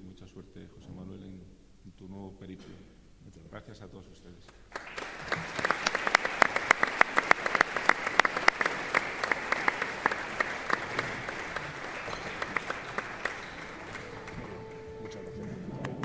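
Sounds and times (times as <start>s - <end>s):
audience applauding: 4.7s - 16.0s.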